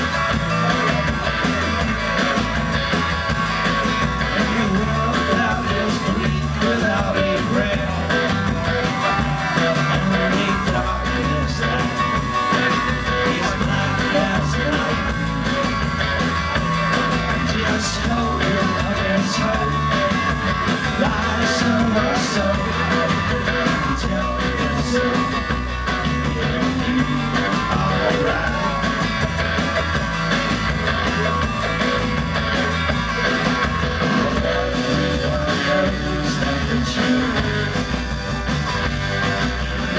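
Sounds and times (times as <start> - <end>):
drums: 0.0 - 39.9
electric guitars: 0.0 - 39.9
man singing through pa: 4.3 - 8.1, 8.9 - 12.1, 13.1 - 15.1, 20.9 - 25.4, 26.2 - 29.0, 34.2 - 37.9.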